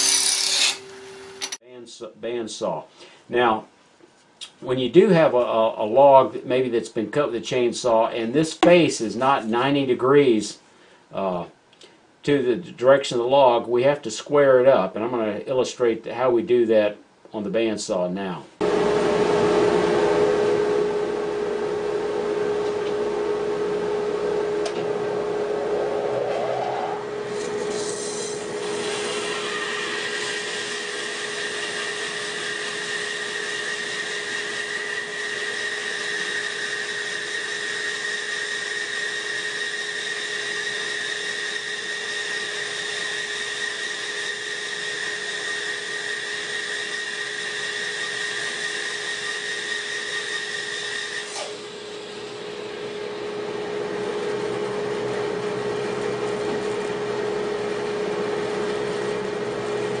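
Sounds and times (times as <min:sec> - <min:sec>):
bandsaw blade cutting whine: 0:00.0 - 0:01.6, 0:23.7 - 0:53.6
bandsaw motor hum: 0:00.0 - 0:01.6, 0:22.4 - 1:00.0
dust collector running: 0:00.0 - 0:01.6, 0:18.6 - 0:36.8.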